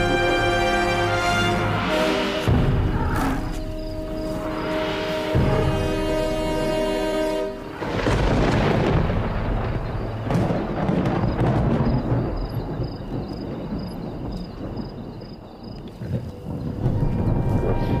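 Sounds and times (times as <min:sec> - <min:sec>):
background music chord: 0:00.0 - 0:10.3
loud rough rumbling commotion: 0:01.5 - 0:15.0, 0:16.4 - 0:18.0.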